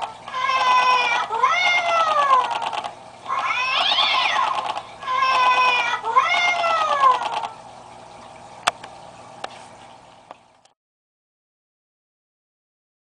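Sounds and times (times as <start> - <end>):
recorded cat yowls: 0.3 - 2.7, 3.3 - 7.5.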